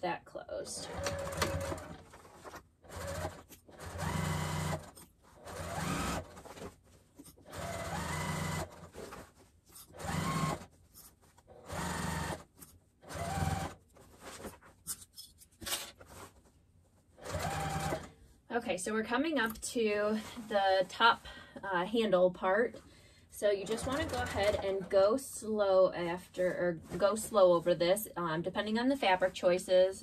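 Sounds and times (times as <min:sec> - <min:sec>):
sewing machine stitching: 0:00.8 - 0:10.8, 0:11.4 - 0:14.5, 0:17.2 - 0:18.2, 0:23.6 - 0:25.0.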